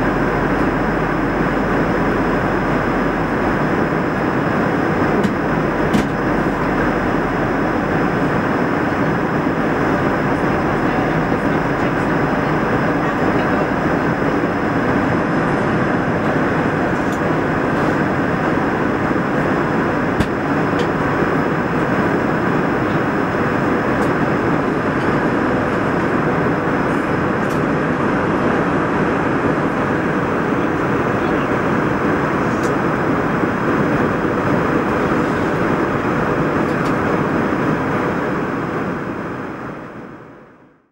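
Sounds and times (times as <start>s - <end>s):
faint high whine: 0.0s - 27.3s
airplane cabin drone: 0.0s - 40.9s.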